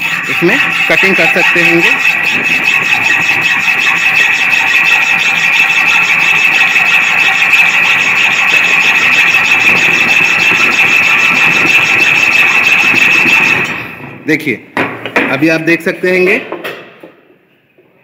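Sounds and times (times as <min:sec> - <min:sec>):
hacksaw sawing metal: 0:00.0 - 0:14.0.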